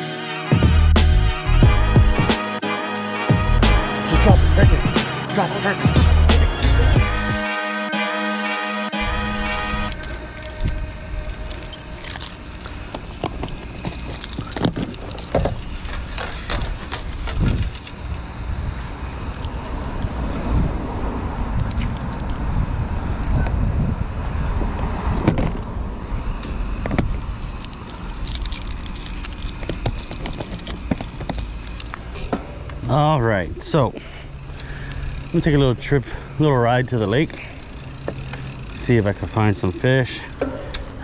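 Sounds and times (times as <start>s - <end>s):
steady low rumble: 3.3s - 7.4s, 9.0s - 16.8s
keys jangling: 9.6s - 17.9s, 21.5s - 22.5s, 27.3s - 32.3s.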